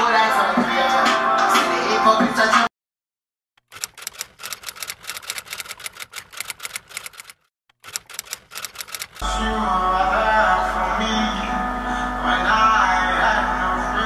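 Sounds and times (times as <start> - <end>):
music: 0.0 - 2.7, 9.2 - 14.0
typewriter keys clacking: 3.6 - 9.2.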